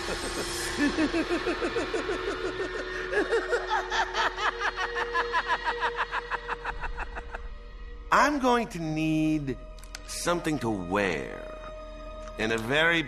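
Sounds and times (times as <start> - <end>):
cackling laugh: 0.0 - 7.5.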